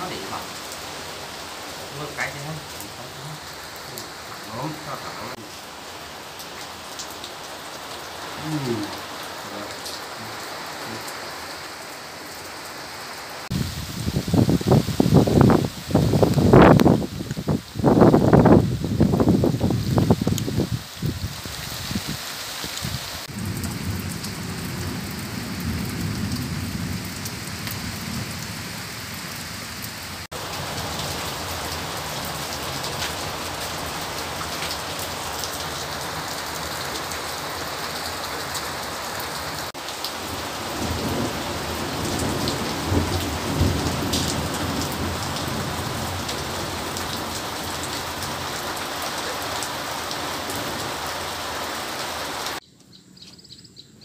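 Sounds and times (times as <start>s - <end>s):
steady rain falling: 0.0s - 52.6s
low thunder rumbling: 23.3s - 29.9s, 40.6s - 48.4s.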